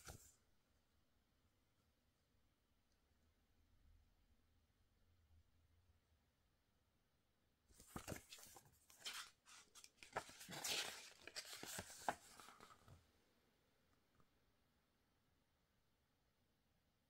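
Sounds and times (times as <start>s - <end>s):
paper pages rustling and crinkling: 7.8s - 13.0s.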